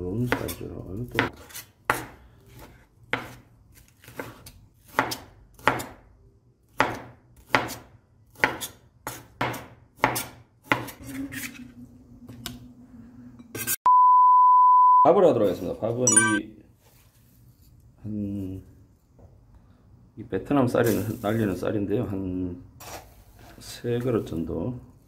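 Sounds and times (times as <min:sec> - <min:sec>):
knife chopping on cutting board: 0:00.3 - 0:06.0, 0:06.7 - 0:11.0.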